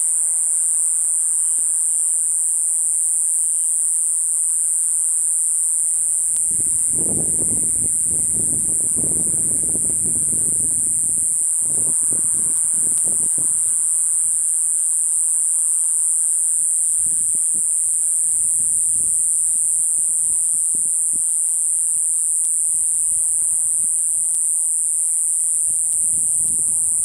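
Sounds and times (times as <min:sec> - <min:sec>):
night insects chirring: 0:00.0 - 0:27.0
wind rumble on microphone: 0:06.4 - 0:13.7, 0:25.7 - 0:27.0.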